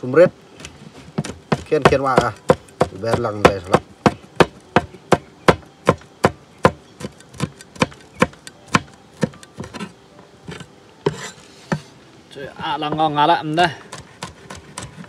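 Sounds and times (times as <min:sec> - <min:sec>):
cleaver chopping on cutting board: 0:00.6 - 0:09.9, 0:10.5 - 0:11.9, 0:13.8 - 0:15.0.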